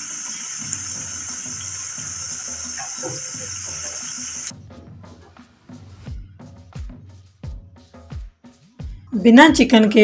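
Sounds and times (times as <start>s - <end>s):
food sizzling in hot oil: 0.0s - 4.5s.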